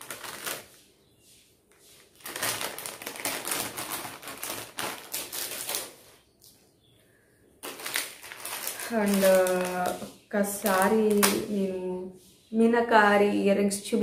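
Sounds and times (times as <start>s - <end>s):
plastic packet crinkling: 0.0s - 0.8s, 2.0s - 6.2s, 7.6s - 11.5s.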